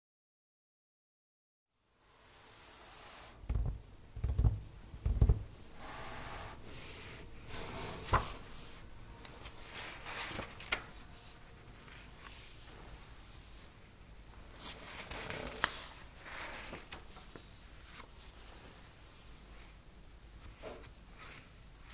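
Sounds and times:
soft thumps of paper cards: 3.5s - 5.5s
paper rustling and sliding: 5.8s - 13.6s, 14.5s - 19.8s.

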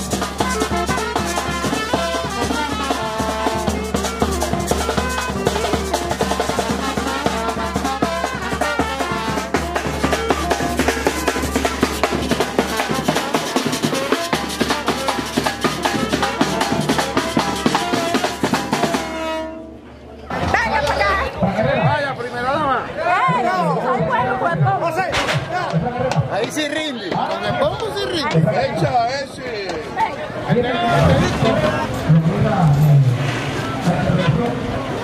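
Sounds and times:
drums: 0.0s - 19.6s, 24.5s - 28.5s
trumpet and saxophone: 0.0s - 20.3s.

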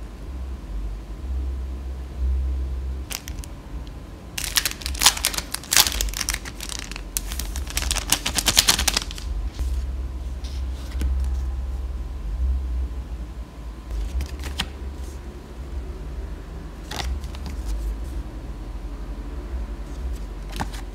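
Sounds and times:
steady low hum: 0.0s - 20.9s
plastic film crinkling: 3.1s - 3.5s, 4.4s - 9.7s, 16.9s - 17.8s.

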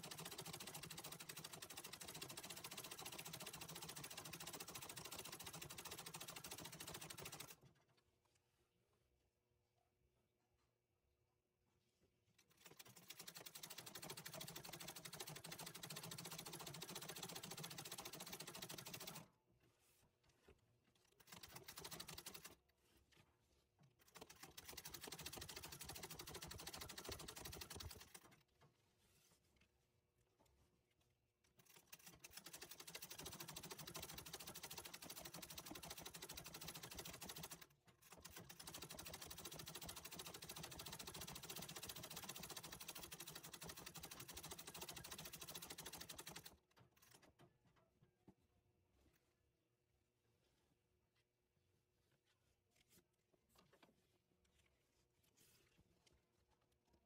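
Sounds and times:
treadle sewing machine stitching: 0.0s - 7.7s, 12.4s - 19.3s, 21.0s - 22.6s, 24.0s - 28.4s, 31.6s - 47.2s.

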